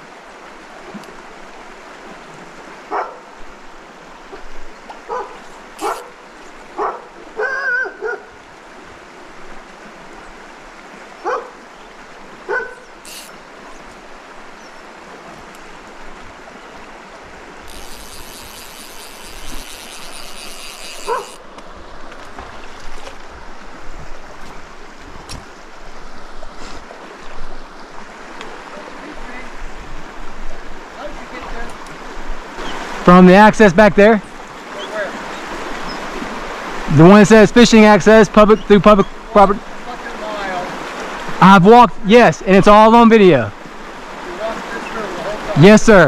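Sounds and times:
mountain stream flowing: 0:00.0 - 0:46.0
dog barking: 0:02.9 - 0:03.3, 0:05.1 - 0:06.1, 0:06.8 - 0:08.4, 0:11.2 - 0:11.6, 0:12.5 - 0:12.9, 0:21.0 - 0:21.4.

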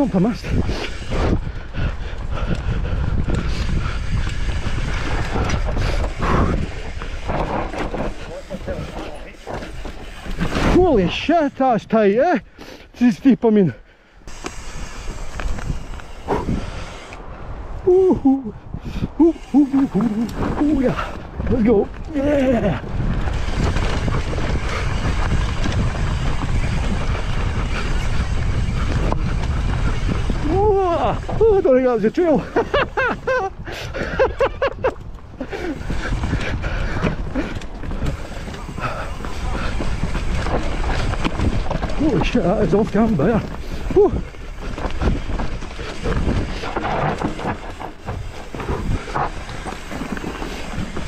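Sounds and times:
tyres rumbling over dirt: 0:00.0 - 0:12.0, 0:19.1 - 0:51.0
wind buffeting microphone: 0:00.0 - 0:12.6, 0:13.7 - 0:51.0
mountain bike knocks and rattles: 0:04.2 - 0:10.9, 0:36.4 - 0:51.0.

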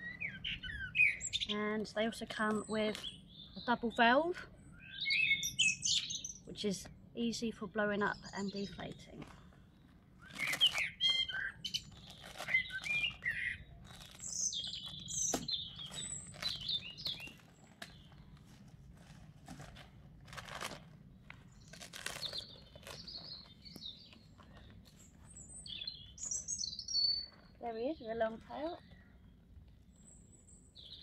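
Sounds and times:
birds chirping and singing: 0:00.0 - 0:06.6, 0:08.0 - 0:18.4, 0:21.5 - 0:31.0
vinyl rustling and crinkling: 0:10.2 - 0:25.6.

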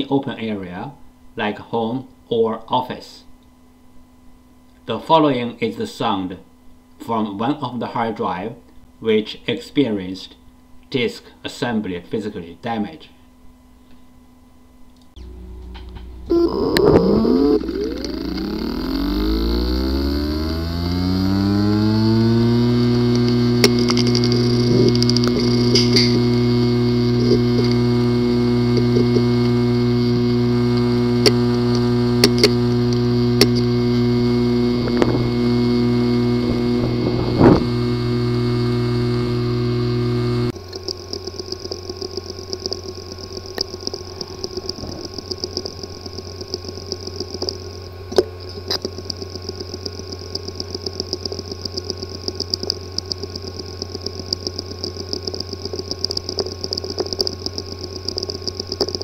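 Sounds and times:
faint steady whine: 0:00.0 - 0:59.0
hard drive buzzing: 0:14.6 - 0:59.0
hard drive clicking: 0:15.2 - 0:59.0.

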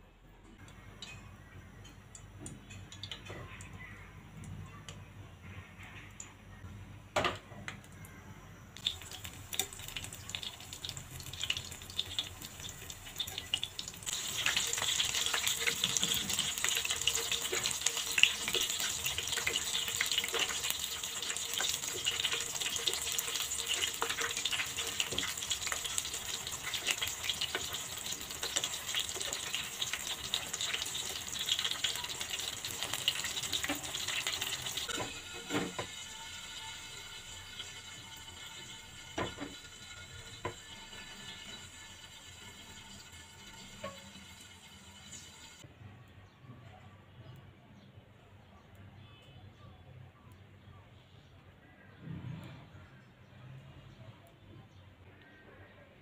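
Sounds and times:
chicken deep-frying in oil: 0:00.6 - 0:06.4, 0:07.2 - 0:45.7.

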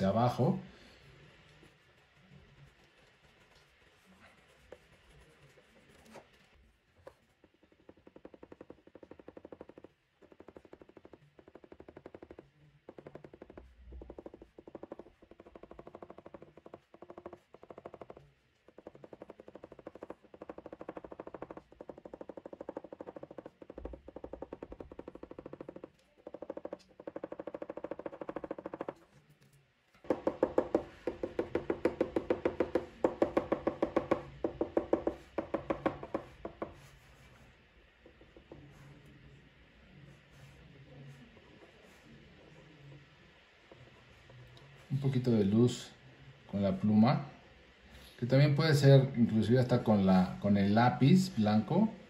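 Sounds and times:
pen scratching on paper: 0:01.4 - 0:43.0.

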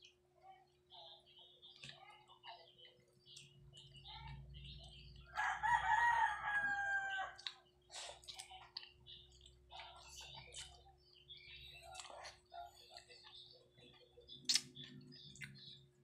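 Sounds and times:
rooster crowing: 0:05.3 - 0:07.4.

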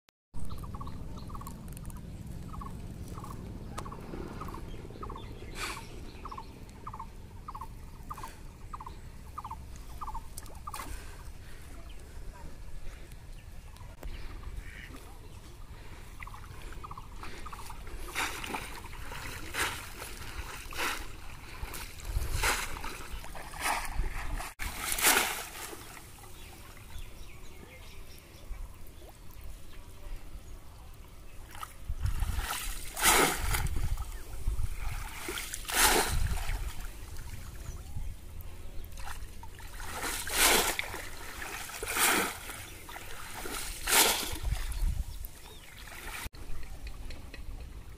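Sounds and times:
water splashing: 0:15.8 - 0:26.7, 0:31.4 - 0:37.8, 0:38.9 - 0:47.0.

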